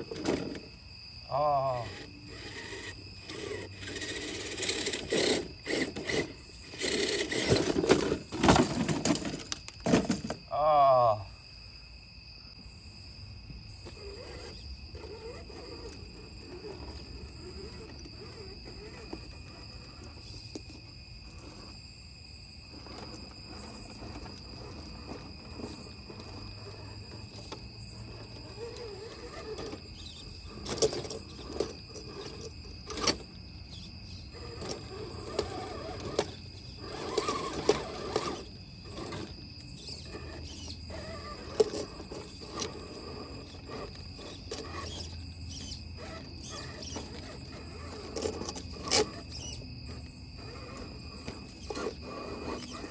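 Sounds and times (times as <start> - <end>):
rc car electric motor whirring: 0.0 - 10.4, 13.7 - 21.9, 22.6 - 52.9
insect trill: 0.0 - 52.9
toy car knocking on stone steps: 3.4 - 10.4.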